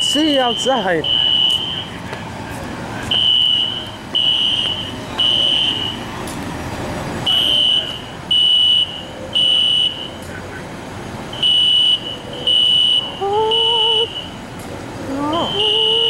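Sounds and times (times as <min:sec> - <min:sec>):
fire alarm beeping: 0:00.0 - 0:02.0, 0:03.1 - 0:06.1, 0:07.3 - 0:10.2, 0:11.4 - 0:14.4, 0:15.3 - 0:16.0.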